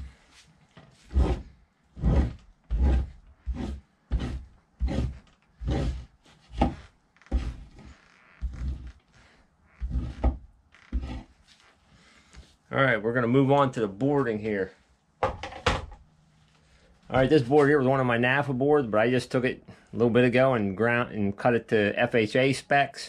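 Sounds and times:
knife scraping hide: 0.9s - 9.0s, 9.8s - 11.6s.

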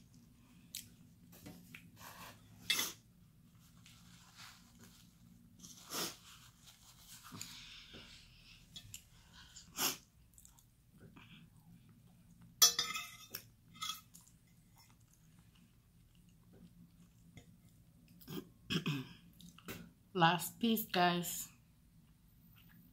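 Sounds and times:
person chewing food: 8.8s - 12.5s, 13.3s - 18.5s, 19.3s - 19.7s
metal fork clinking on plate: 12.6s - 14.1s.

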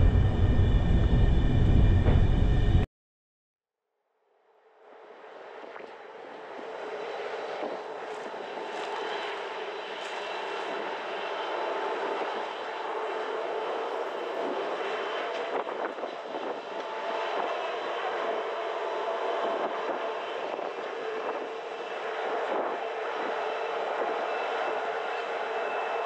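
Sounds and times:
train wheels rumbling on rail: 0.0s - 2.8s.

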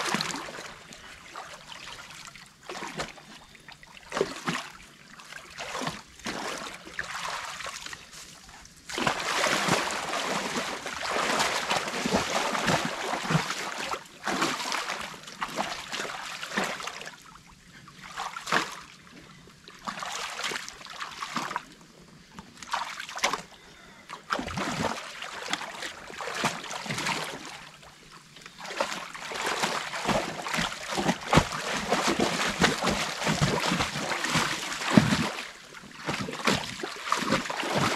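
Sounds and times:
water splashing and rushing: 0.0s - 3.2s, 8.9s - 17.0s, 28.5s - 37.9s.

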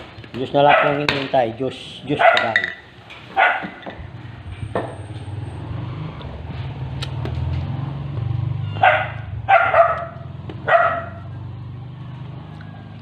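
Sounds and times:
dog barking: 0.6s - 1.1s, 2.1s - 2.6s, 3.4s - 3.8s, 8.8s - 11.4s
low engine-like hum: 4.0s - 13.0s.

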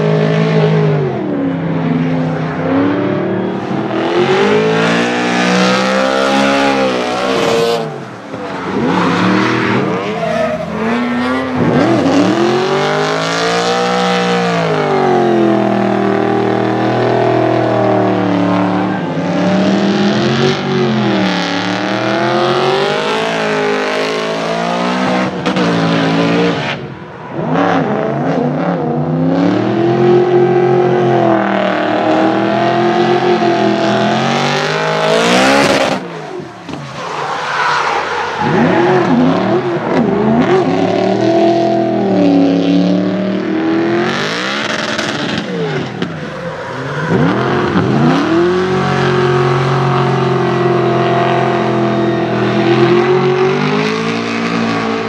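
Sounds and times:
car engine revving: 0.0s - 55.0s
tyres squealing: 8.4s - 11.3s.

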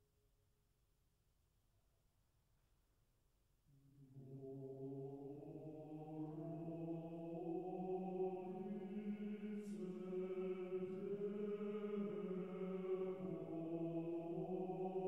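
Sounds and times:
choir chanting held notes: 5.2s - 15.0s.

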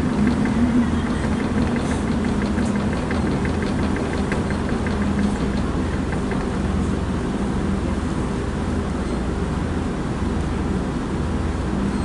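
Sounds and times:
light ticking rattle: 0.0s - 7.0s
train engine humming: 0.0s - 11.9s
train rumbling on track: 0.0s - 12.0s.

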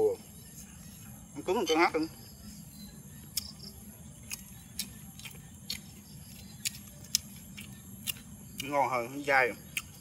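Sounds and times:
chopsticks clicking: 4.2s - 5.9s.

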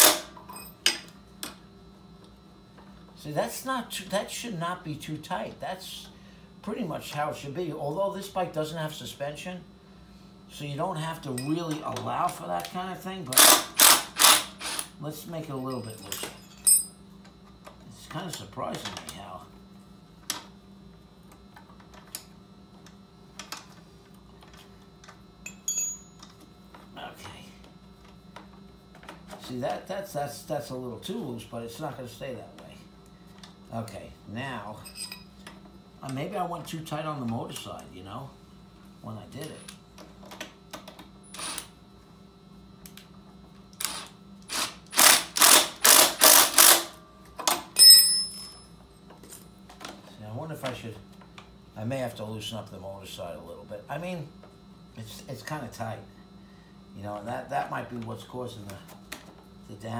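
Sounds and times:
steady low hum: 0.0s - 59.9s
cordless power driver bursts: 13.4s - 14.9s, 43.8s - 47.0s
ringing metal clink: 15.7s - 16.9s, 25.5s - 26.2s, 47.8s - 48.7s.

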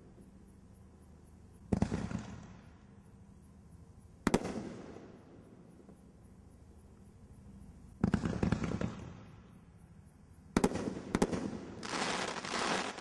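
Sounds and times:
firework pops and crackles: 1.7s - 2.6s, 4.2s - 5.0s, 8.0s - 9.3s, 10.5s - 13.0s
firework bangs: 10.6s - 13.0s
hissing crackle: 11.1s - 13.0s.

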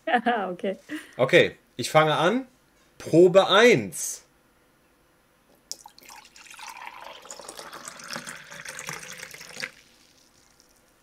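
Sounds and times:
water pouring into mug: 5.7s - 10.8s.

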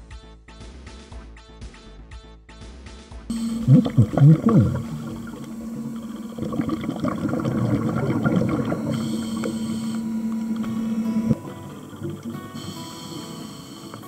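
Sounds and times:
constant low hum: 3.3s - 14.0s
scuba bubbles gurgling: 3.3s - 14.0s.

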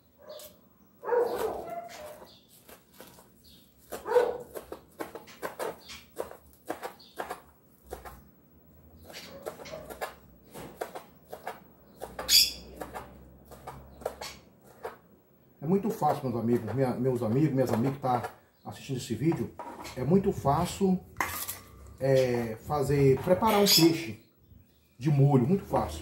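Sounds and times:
knife chopping on cutting board: 3.8s - 8.2s.

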